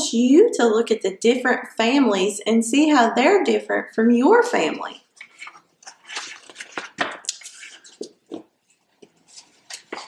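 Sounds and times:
book pages rustling: 5.1 - 10.0.

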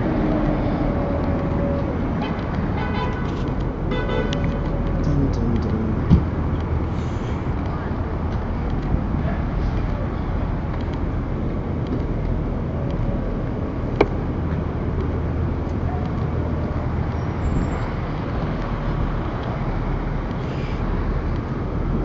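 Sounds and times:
city traffic rumble: 0.0 - 22.0.

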